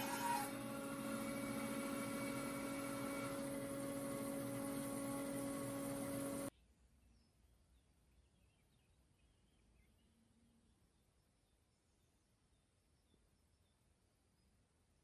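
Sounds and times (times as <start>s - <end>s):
bandsaw motor hum: 0.0s - 6.5s.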